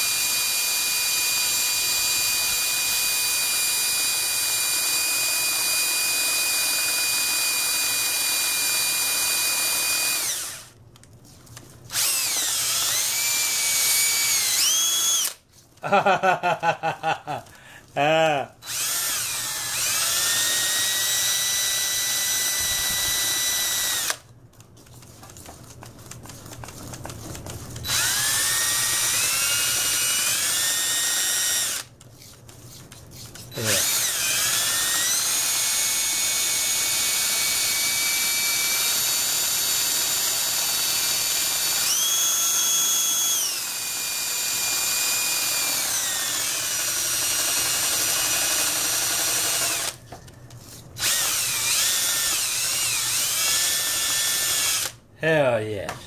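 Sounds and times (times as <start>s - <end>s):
drill whisk motor whine: 0.0s - 10.7s, 11.9s - 15.4s, 18.6s - 24.2s, 27.8s - 31.9s, 33.5s - 50.0s, 51.0s - 55.0s.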